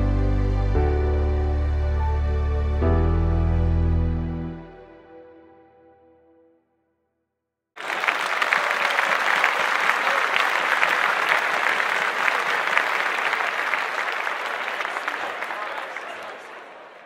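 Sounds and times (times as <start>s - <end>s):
background music: 0.0s - 6.7s
crowd applause: 7.8s - 17.0s.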